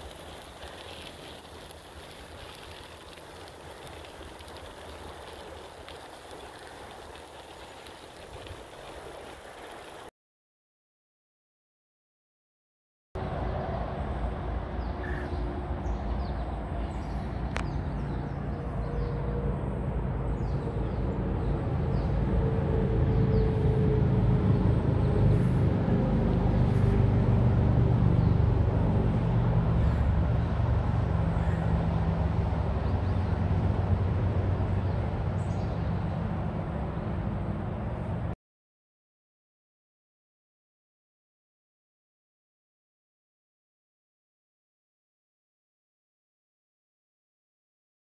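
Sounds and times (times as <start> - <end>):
bicycle tyres rolling on gravel: 0.0 - 10.1.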